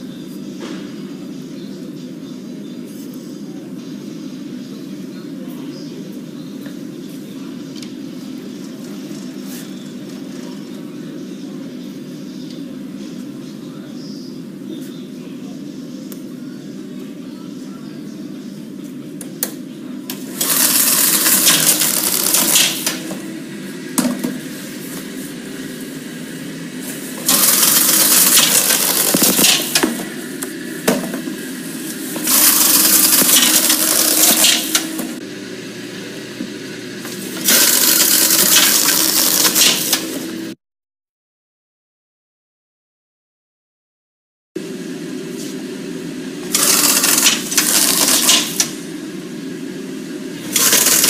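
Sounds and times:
belt drive humming: 0:19.2 - 0:40.6, 0:46.4 - 0:49.3, 0:50.0 - 0:51.0.

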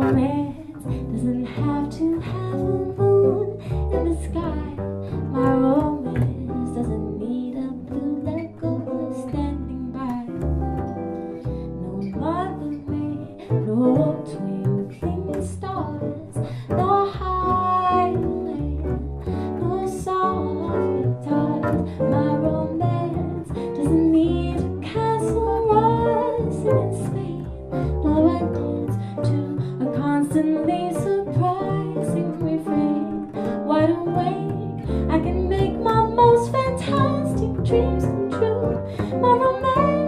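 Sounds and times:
woman singing into microphone: 0:00.0 - 0:10.3, 0:19.6 - 0:40.0
archtop guitar: 0:00.0 - 0:40.0
plucked double bass: 0:00.0 - 0:40.0.

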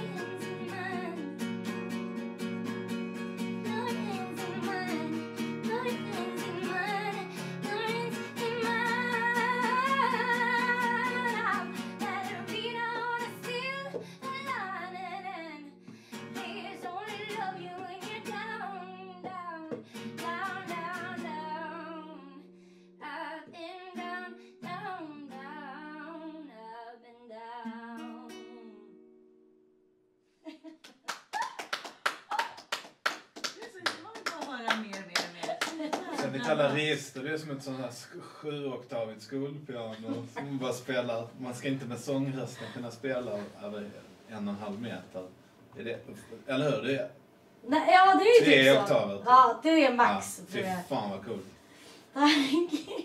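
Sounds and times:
woman singing with vibrato: 0:00.0 - 0:01.4, 0:03.6 - 0:15.8, 0:16.4 - 0:28.9
acoustic guitar strummed chords: 0:00.0 - 0:23.0.

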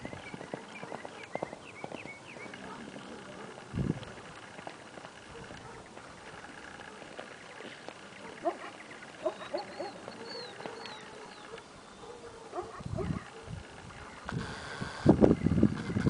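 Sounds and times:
faint bird chirps: 0:08.2 - 0:12.4.

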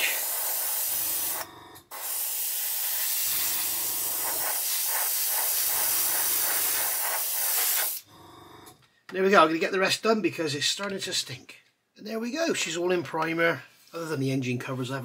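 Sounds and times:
airbrush spraying hiss: 0:00.0 - 0:08.0.

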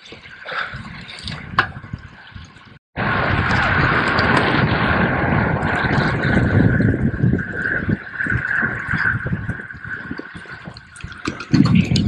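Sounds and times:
wind rushing over microphone: 0:00.5 - 0:12.0
tyre and road noise: 0:03.0 - 0:12.0.

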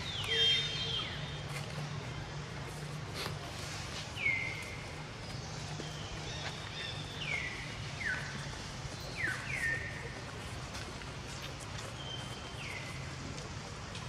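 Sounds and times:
bird whistling: 0:00.0 - 0:01.3.

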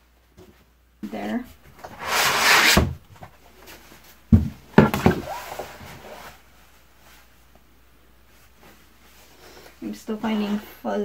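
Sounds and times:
mat rustling as it slides: 0:01.9 - 0:03.0, 0:05.0 - 0:07.4.

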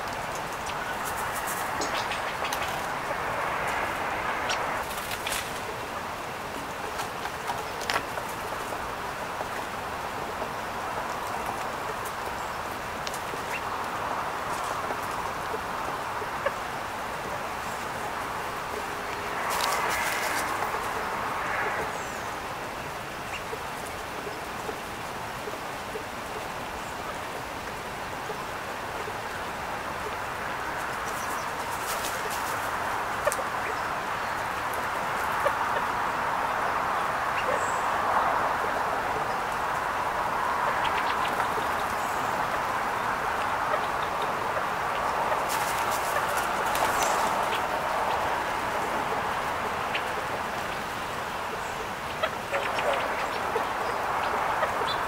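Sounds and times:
outdoor background hiss: 0:00.0 - 0:55.0
birds pecking seed on wooden table: 0:44.7 - 0:48.6.

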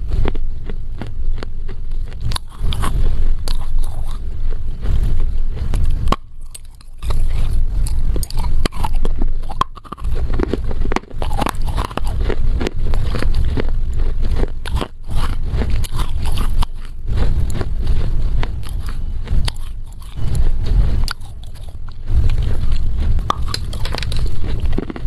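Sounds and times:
biting and chewing dry clay: 0:00.0 - 0:25.0
sharp cracks and gritty crunches: 0:05.6 - 0:25.0.

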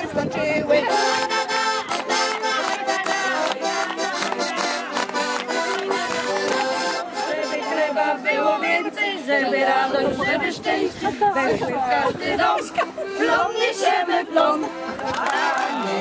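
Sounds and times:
accordion playing folk tune: 0:00.0 - 0:16.0
women singing: 0:05.6 - 0:16.0.

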